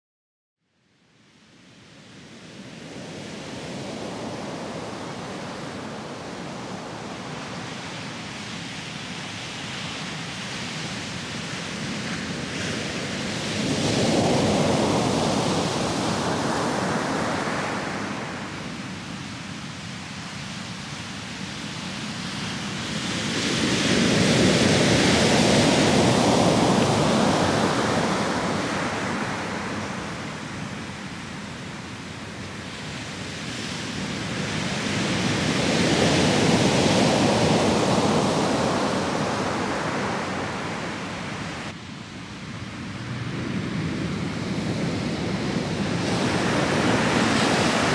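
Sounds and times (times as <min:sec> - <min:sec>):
heavy surf breaking on beach: 0:01.8 - 0:47.9
big waves crashing: 0:02.0 - 0:47.9.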